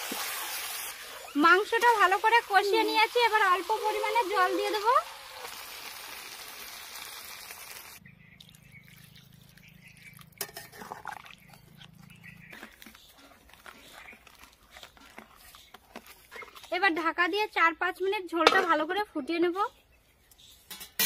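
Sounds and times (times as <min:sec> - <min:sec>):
food sizzling in oil: 0:00.0 - 0:08.0
water pouring: 0:00.0 - 0:11.5
spatula stirring curry: 0:10.5 - 0:17.6.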